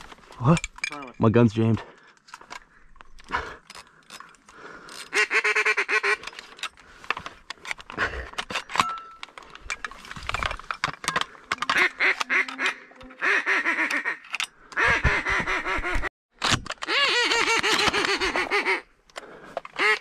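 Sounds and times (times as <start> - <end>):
ducks quacking: 11.6 - 16.1, 17.0 - 18.9.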